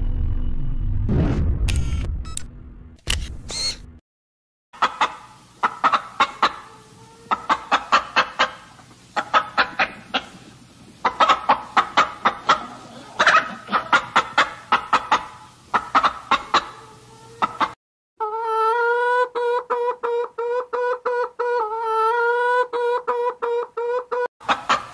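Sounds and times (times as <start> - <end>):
chicken clucking: 4.8 - 24.9.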